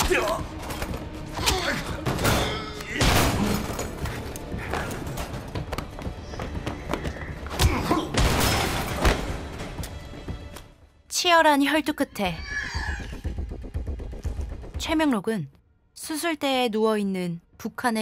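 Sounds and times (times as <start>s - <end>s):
background score music: 0.0s - 18.0s.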